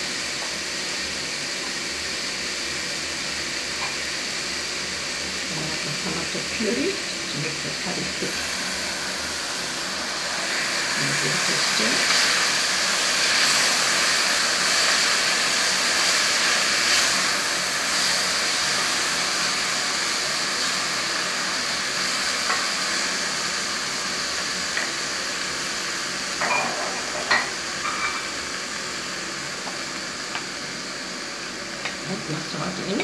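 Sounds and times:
food sizzling in hot oil: 0.0s - 33.0s.

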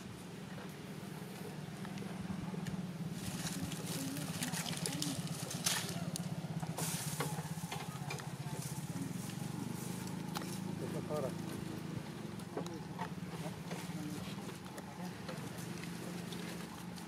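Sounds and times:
steady low hum: 0.0s - 17.0s
dry leaves rustling and crackling: 3.0s - 12.0s.

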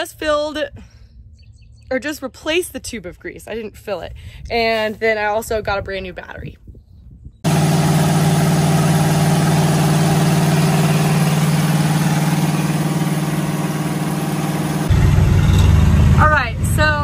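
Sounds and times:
engine humming: 7.5s - 17.0s.

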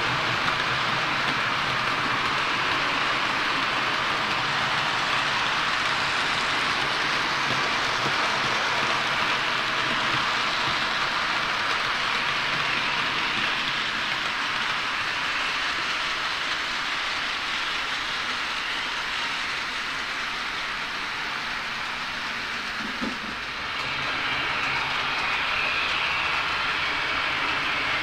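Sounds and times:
model train wheels hissing on rails: 0.0s - 28.0s.

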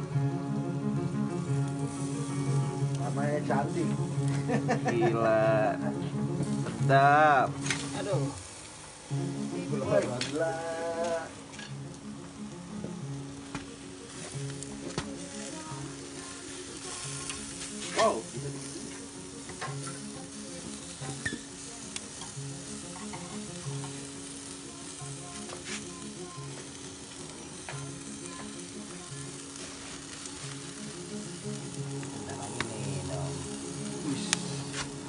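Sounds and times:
wood fire crackling and sizzling: 0.0s - 35.0s
sharp fire pops: 7.5s - 12.0s, 13.4s - 35.0s.

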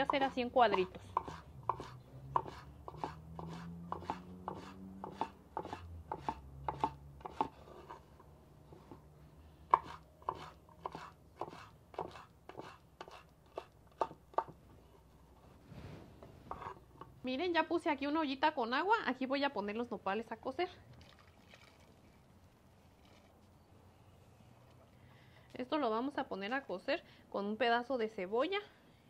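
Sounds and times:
knife chopping on wooden board: 0.0s - 8.0s, 9.7s - 14.6s.

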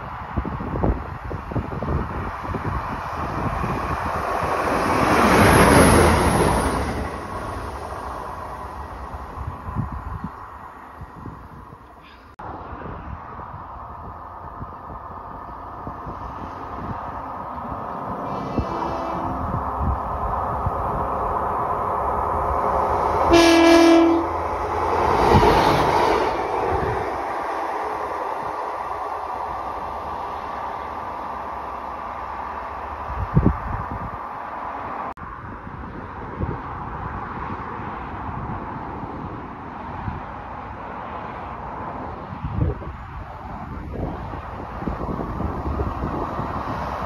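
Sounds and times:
diesel train passing: 0.0s - 47.0s
train horn blast: 18.2s - 19.4s, 23.3s - 24.4s.

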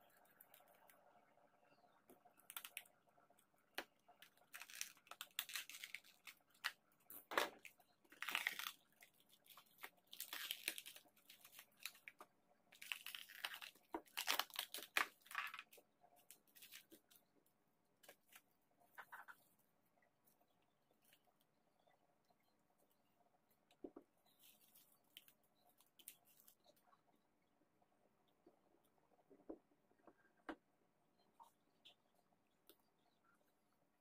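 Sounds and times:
plastic strip crinkling and tearing: 2.4s - 2.9s, 4.2s - 17.2s.

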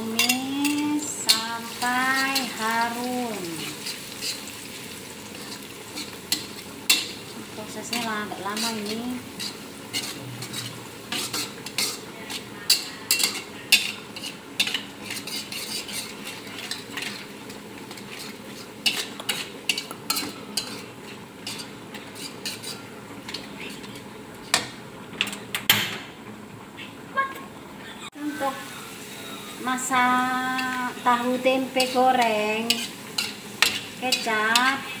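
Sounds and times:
metal spatula scraping wok: 0.0s - 24.7s, 30.2s - 35.0s
garlic sizzling in oil: 0.0s - 25.1s, 28.1s - 35.0s.

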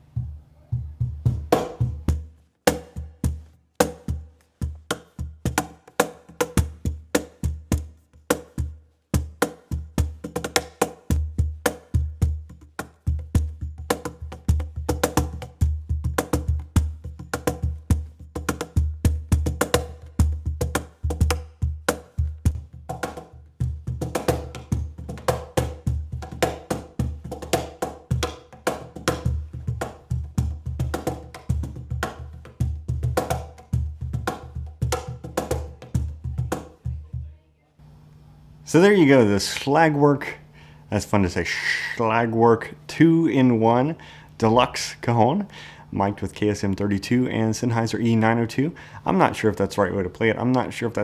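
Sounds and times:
cajon played by hand: 0.2s - 37.3s.

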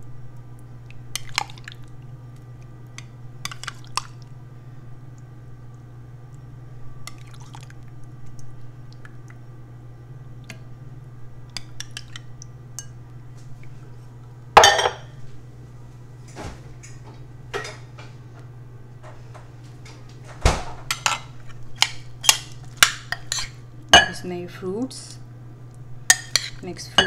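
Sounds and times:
steady low hum: 0.0s - 27.0s
dishes clattering: 14.6s - 15.1s, 17.5s - 17.9s, 20.8s - 24.2s.

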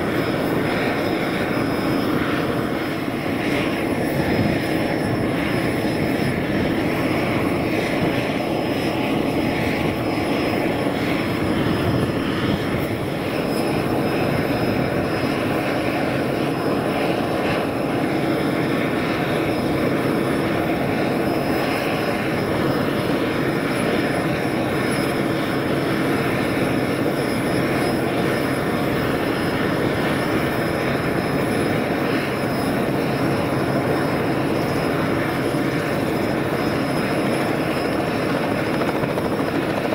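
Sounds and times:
helicopter engine and rotor drone: 0.0s - 39.9s.

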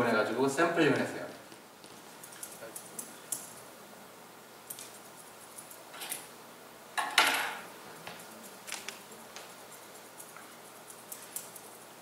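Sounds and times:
scissors snipping hair: 2.2s - 3.6s, 4.7s - 6.2s, 8.1s - 11.9s.

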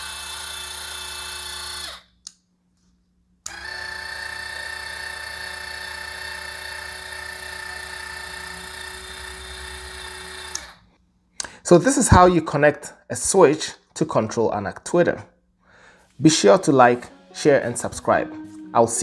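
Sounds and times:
electric motor whine: 3.5s - 10.8s.

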